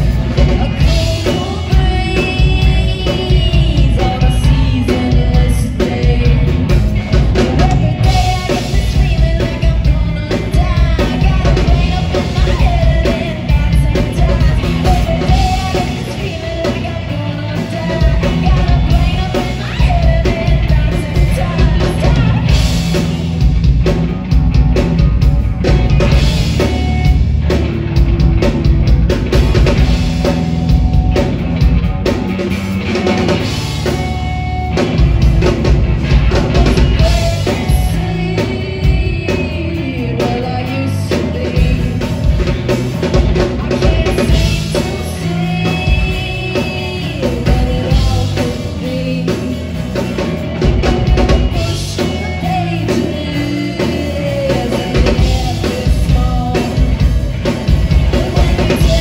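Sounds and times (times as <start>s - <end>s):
woman singing: 0.0s - 23.0s, 36.2s - 59.0s
drum kit: 0.0s - 59.0s
electric bass: 0.0s - 59.0s
electric guitar: 0.0s - 59.0s.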